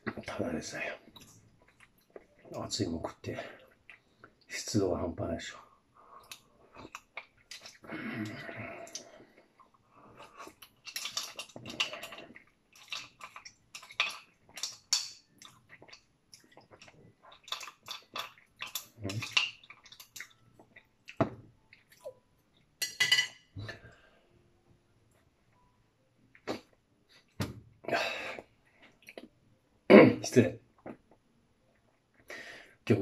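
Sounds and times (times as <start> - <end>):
person chewing: 1.0 - 2.6, 3.6 - 4.5, 6.1 - 22.8.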